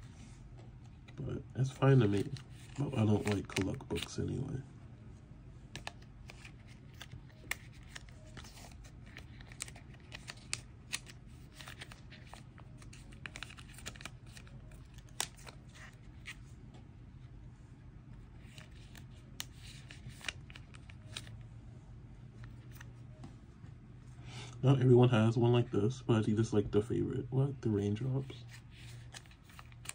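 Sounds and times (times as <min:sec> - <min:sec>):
faint low hum: 0:00.0 - 0:29.9
cards sliding into plastic sleeves: 0:01.8 - 0:04.2, 0:05.7 - 0:16.4, 0:18.4 - 0:21.3, 0:28.2 - 0:29.9.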